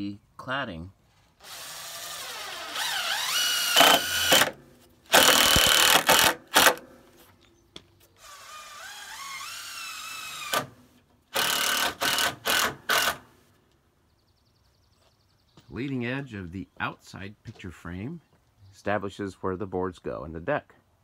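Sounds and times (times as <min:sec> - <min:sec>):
power drill driving screws: 0:01.4 - 0:06.8, 0:08.2 - 0:13.3.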